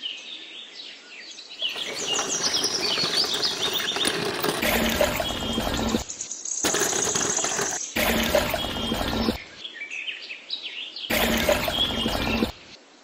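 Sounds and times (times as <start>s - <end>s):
birds chirping: 1.4s - 9.8s, 11.1s - 12.8s.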